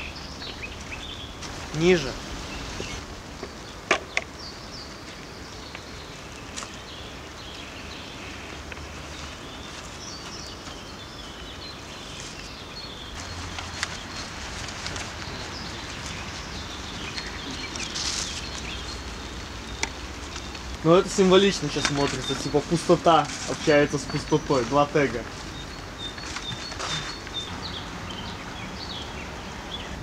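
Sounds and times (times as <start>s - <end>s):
birds chirping: 0.0s - 30.0s
brush clicks and scrapes: 13.2s - 19.2s.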